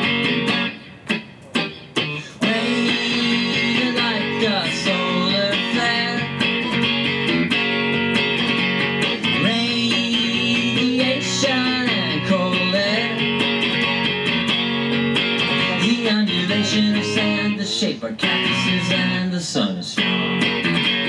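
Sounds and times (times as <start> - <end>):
strummed electric guitar: 0.0 - 21.0
man singing: 2.2 - 6.5, 9.2 - 13.6, 15.5 - 20.2.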